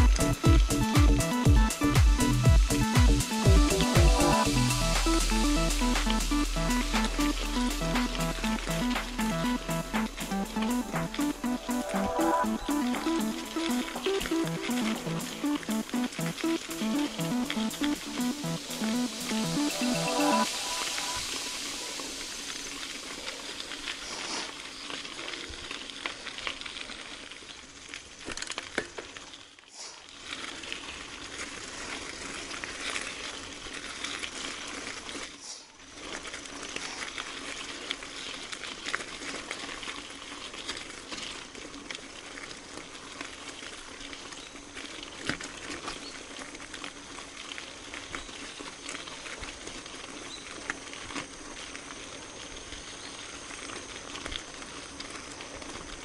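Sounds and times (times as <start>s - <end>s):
bike tyres on gravel: 19.8s - 56.0s.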